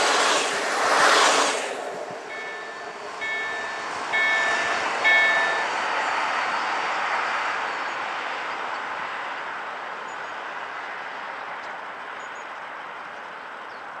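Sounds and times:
steam train rolling away: 0.0 - 9.4.

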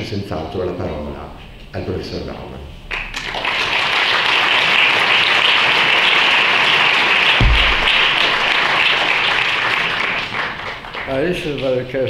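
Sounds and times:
audience applauding: 2.9 - 11.9
short low thump: 7.4 - 8.3.

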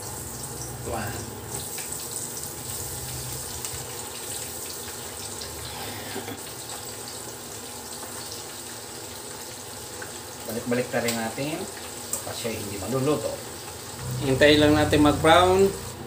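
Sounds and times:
chicken deep-frying in oil: 0.0 - 16.0
low hum: 14.0 - 16.0.

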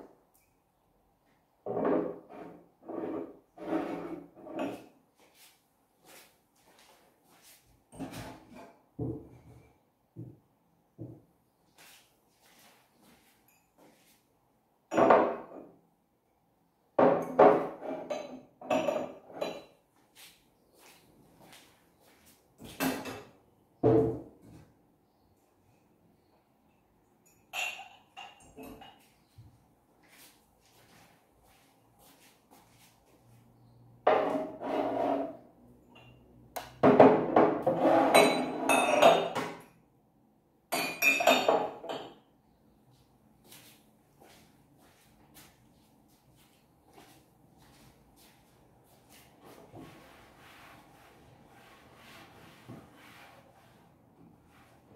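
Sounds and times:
ceramic mugs knocking and clinking: 14.9 - 15.8, 17.0 - 19.8, 27.2 - 29.1, 36.0 - 39.7, 40.7 - 42.2.

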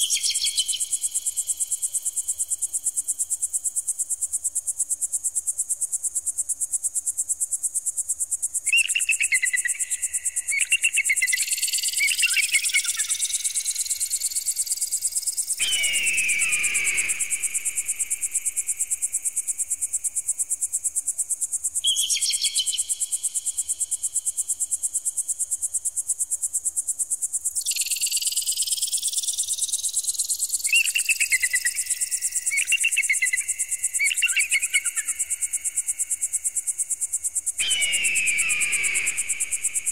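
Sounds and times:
short warbling calls: 15.6 - 18.8, 37.6 - 39.9.

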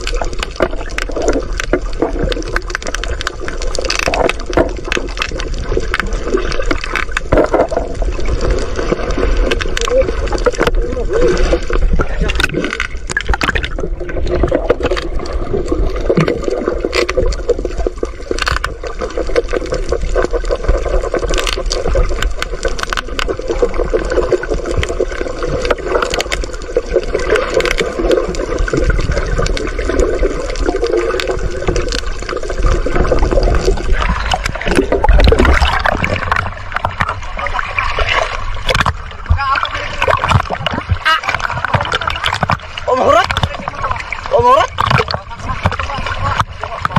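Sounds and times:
underwater gurgling water: 0.0 - 46.9
sharp clicks and knocks: 38.6 - 39.4.

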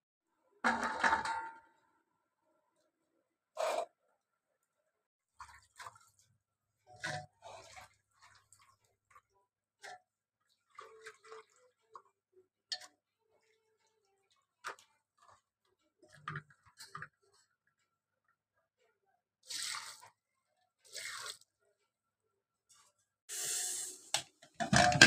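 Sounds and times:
knocks against metal pot: 0.7 - 1.7, 24.6 - 25.0.

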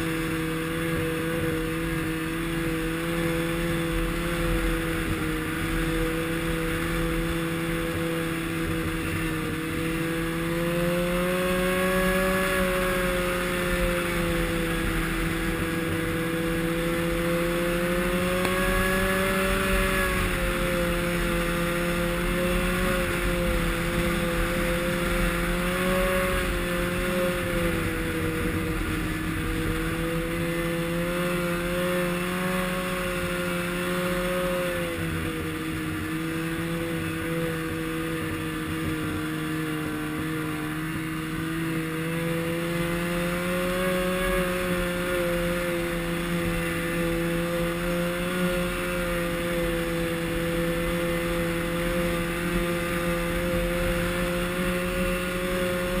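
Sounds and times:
snowmobile engine running: 0.0 - 56.0.

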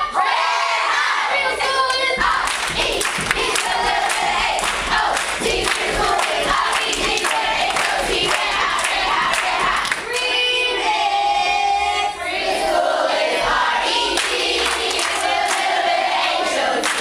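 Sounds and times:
group singing and chanting: 0.0 - 17.0.

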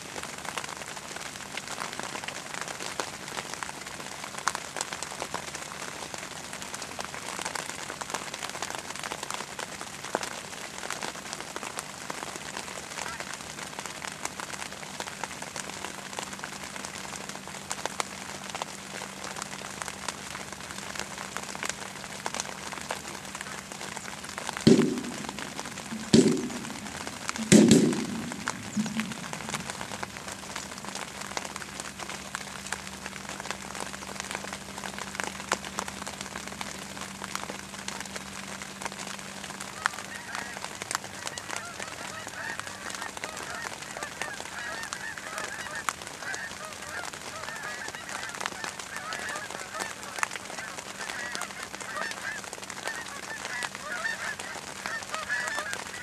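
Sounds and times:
geese honking overhead: 10.1 - 32.2, 38.5 - 56.0.

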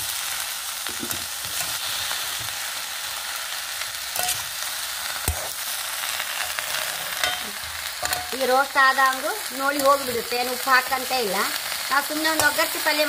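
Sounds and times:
vegetables sizzling in hot oil: 0.0 - 13.0
metal spatula scraping pan: 4.2 - 4.6.

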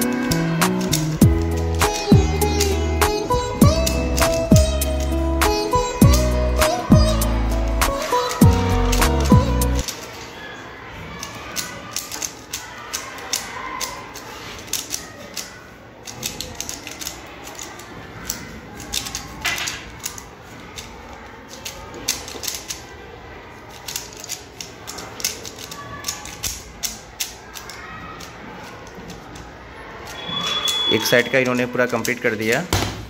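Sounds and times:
puzzle cube clicking: 0.0 - 10.0, 11.5 - 20.9, 21.5 - 22.9, 23.7 - 29.5.

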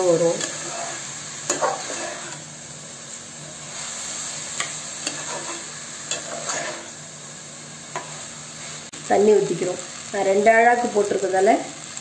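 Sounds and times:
rice sizzling in a pot: 0.0 - 12.0
spatula scraping and clicking on pot: 4.6 - 6.9.

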